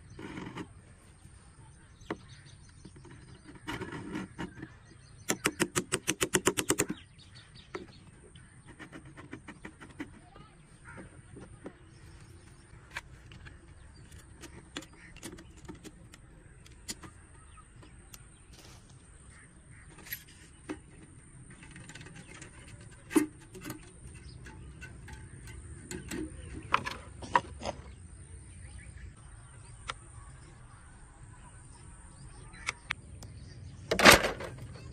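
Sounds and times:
plastic jar and parts clicking: 19.8s - 27.9s.

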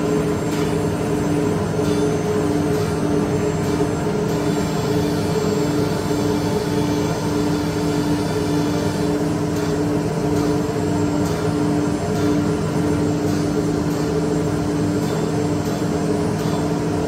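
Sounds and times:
vacuum blowers humming: 0.0s - 17.0s.

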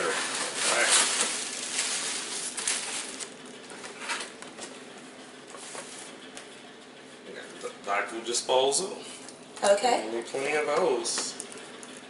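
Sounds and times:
tissue paper rustling: 0.0s - 3.4s.

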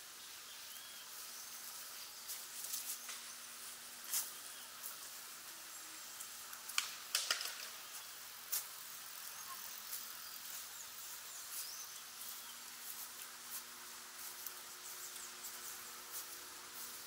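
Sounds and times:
small birds chirping: 0.0s - 17.0s
steady high hiss: 0.0s - 17.0s
sharp clicks: 6.7s - 7.8s.

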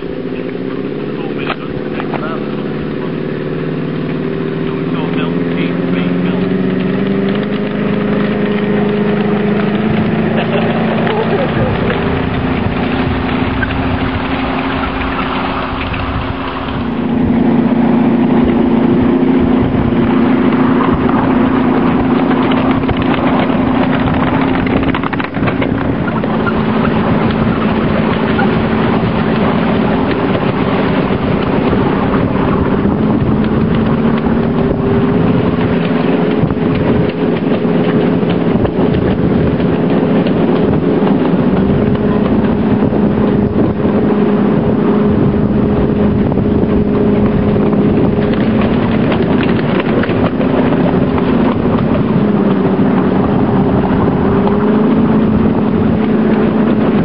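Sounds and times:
wind buffeting microphone: 0.0s - 57.0s
miniature locomotive engine running: 21.8s - 44.0s.

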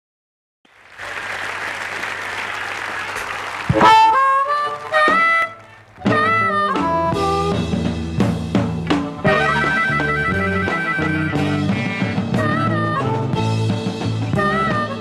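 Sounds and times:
crowd applause: 0.7s - 6.5s
drums: 0.7s - 15.0s
amplified blues harmonica: 3.0s - 8.0s, 8.9s - 15.0s
bass: 3.2s - 15.0s
electric guitar: 3.7s - 15.0s.

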